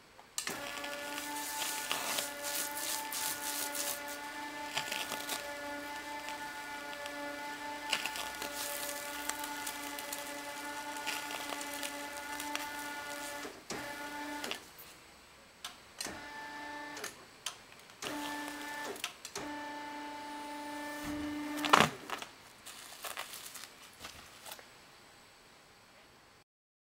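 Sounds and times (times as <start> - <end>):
loud sharp crackle: 0.4 - 13.5, 21.6 - 24.6
electric motors whining: 0.4 - 14.7, 18.0 - 22.3
plastic film crackling: 0.4 - 14.7, 18.0 - 19.0, 21.0 - 24.7.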